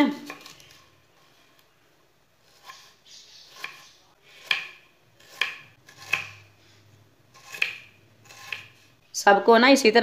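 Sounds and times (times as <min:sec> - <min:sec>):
knife cutting on wooden board: 0:02.4 - 0:06.5, 0:07.3 - 0:08.9.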